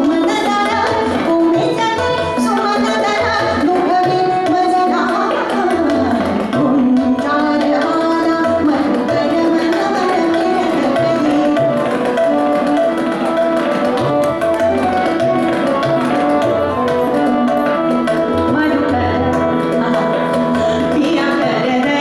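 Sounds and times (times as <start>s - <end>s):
woman singing: 0.0s - 11.8s, 18.2s - 22.0s
tabla strokes: 0.0s - 22.0s.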